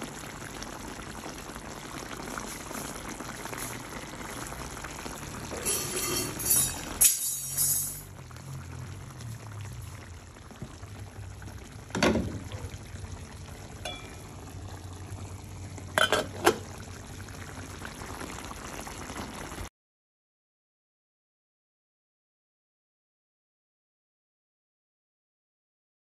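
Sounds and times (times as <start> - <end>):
curry bubbling in a pan: 0.0 - 19.7.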